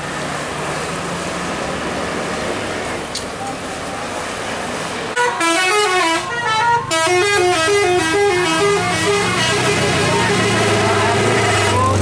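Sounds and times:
bus engine drone: 0:00.0 - 0:12.0
bus horn playing a melody: 0:05.2 - 0:12.0.

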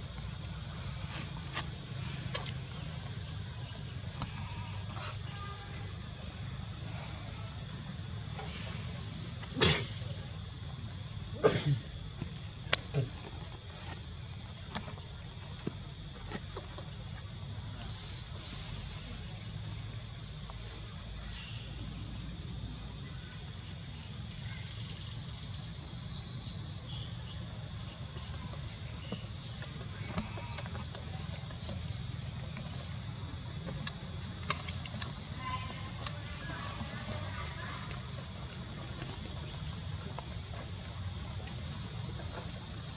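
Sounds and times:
insects droning: 0:00.0 - 0:42.9.

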